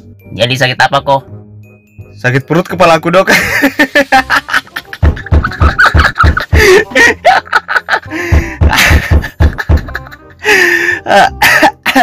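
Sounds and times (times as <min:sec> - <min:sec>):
fast bass beat: 0:05.0 - 0:06.6.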